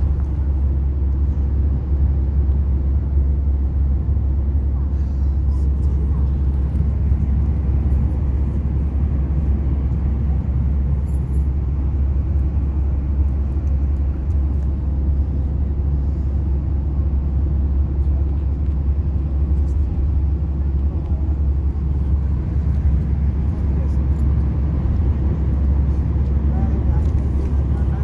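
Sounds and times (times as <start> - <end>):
engine and tyre rumble: 0.0 - 28.0.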